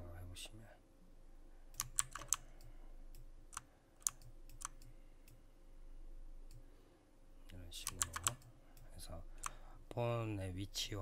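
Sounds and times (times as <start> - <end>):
mouse and keyboard clicks: 1.8 - 2.4.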